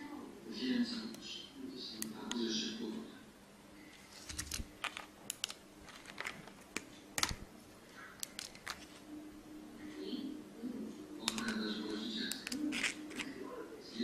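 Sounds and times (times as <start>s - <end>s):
plastic phone parts clicking: 4.2s - 7.4s, 8.2s - 8.9s, 11.2s - 11.6s, 12.3s - 13.3s.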